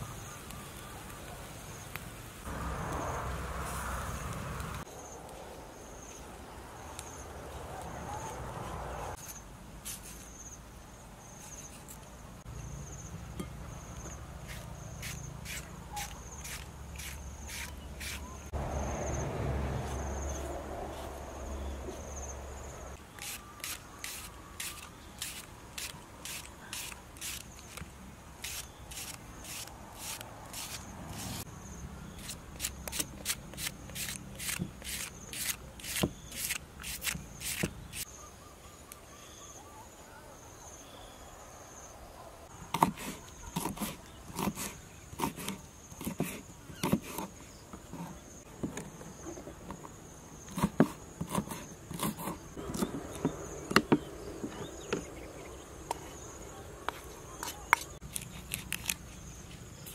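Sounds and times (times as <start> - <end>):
insects chirping: 10.1 - 59.9
knife slicing vegetables: 50.5 - 53.0.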